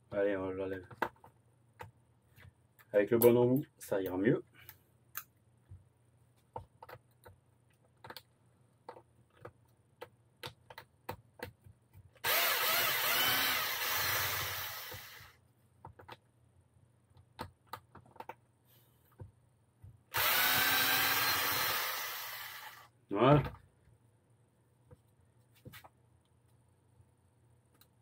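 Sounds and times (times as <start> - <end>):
cordless screwdriver running: 12.2 - 15.3, 20.1 - 22.9.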